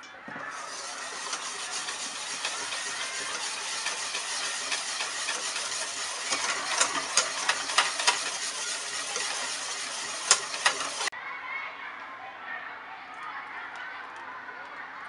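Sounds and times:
whisk clicking against bowl: 0:00.5 - 0:11.1
whisk swishing in metal bowl: 0:00.5 - 0:11.1.

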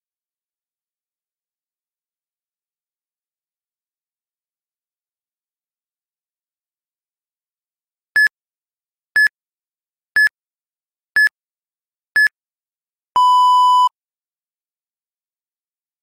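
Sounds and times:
long low timer beep: 0:13.2 - 0:13.9.

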